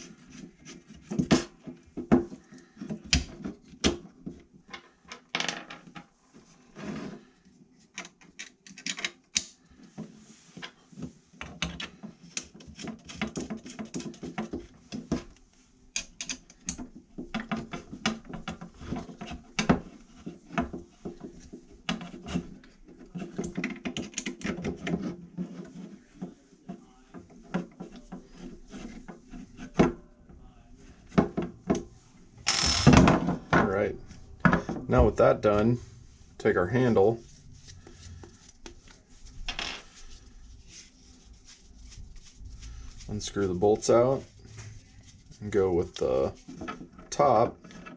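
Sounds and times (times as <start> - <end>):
parts clicking and knocking on wood: 0.3 - 6.1, 7.9 - 10.8, 11.4 - 22.4, 23.2 - 25.2.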